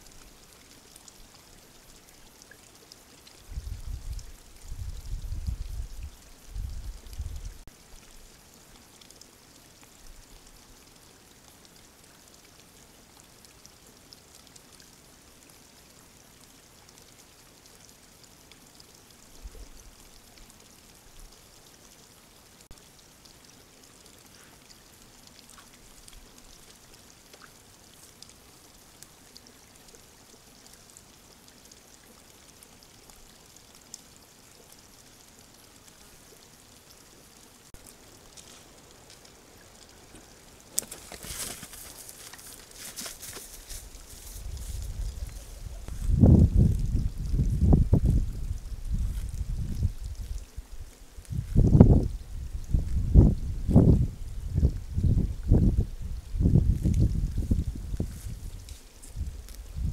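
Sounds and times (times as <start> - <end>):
small ticks: 0.0 - 52.2, 56.2 - 59.9
steady hiss: 0.0 - 59.9
water dripping and splashing: 0.0 - 59.9.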